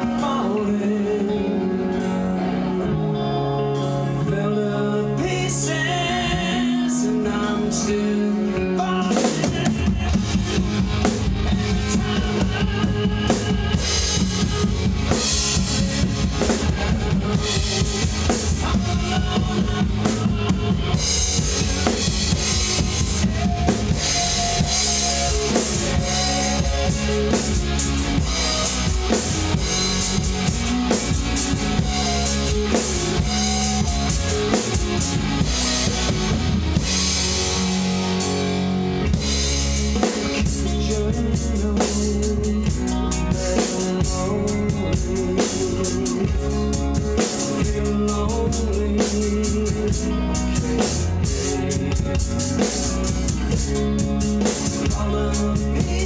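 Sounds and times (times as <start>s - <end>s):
recorded rock song: 0.0s - 56.0s
rock drum beat: 5.6s - 56.0s.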